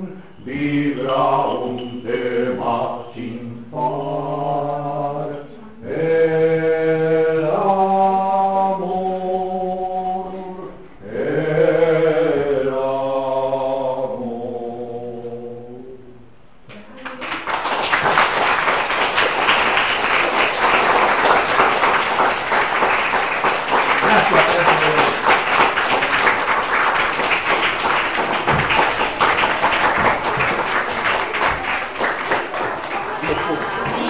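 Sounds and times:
audience applauding: 17.0s - 34.0s.

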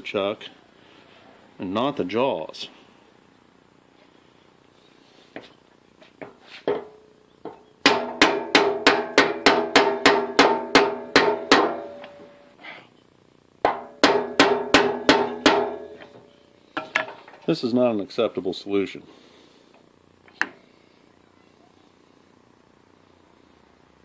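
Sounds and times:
hammer blows ringing on metal: 7.8s - 12.3s, 13.7s - 16.0s.

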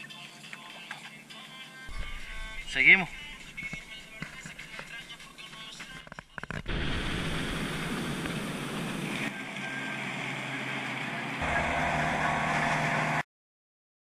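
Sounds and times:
motorboat engine drone: 1.9s - 4.7s, 6.7s - 13.2s
rushing water: 6.7s - 9.4s.

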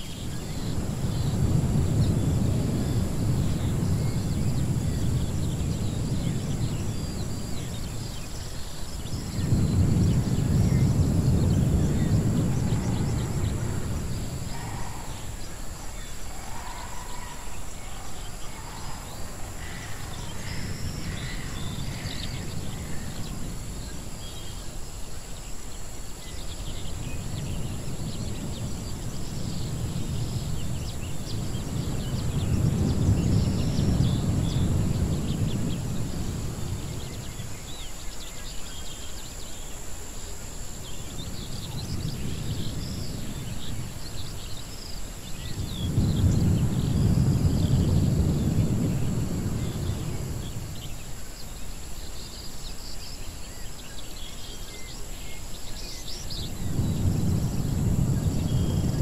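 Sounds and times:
steady high hiss: 0.0s - 59.0s.

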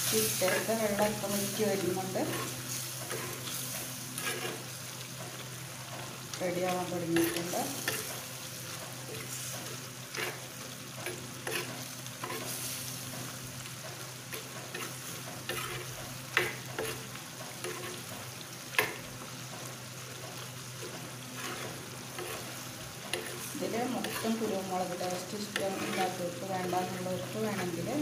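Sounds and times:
food sizzling in clay pot: 0.0s - 28.0s
metal spoon scraping a pot: 2.2s - 3.5s, 4.2s - 4.7s, 11.0s - 12.6s, 14.4s - 17.0s, 17.6s - 18.0s, 21.4s - 26.2s.

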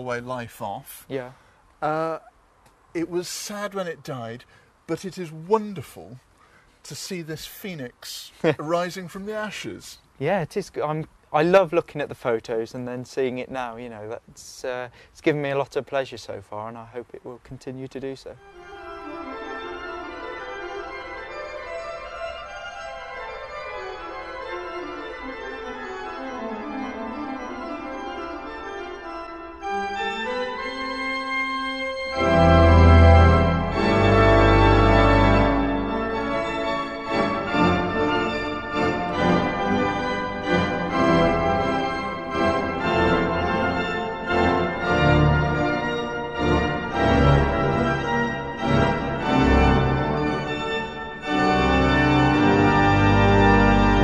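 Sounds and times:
instrumental music: 18.0s - 54.0s.

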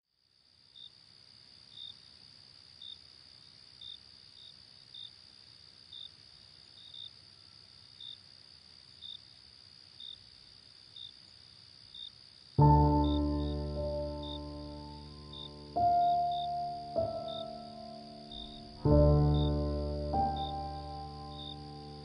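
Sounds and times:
insect chirps: 0.1s - 22.0s
high-pitched insect drone: 11.9s - 22.0s.

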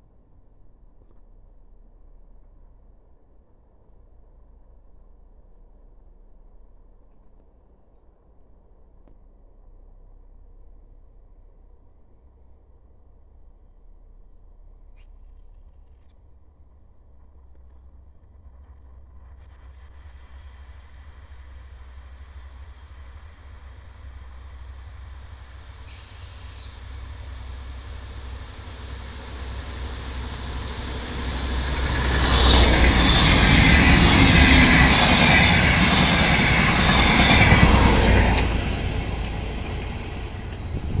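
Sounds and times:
diesel train passing: 19.2s - 41.0s.

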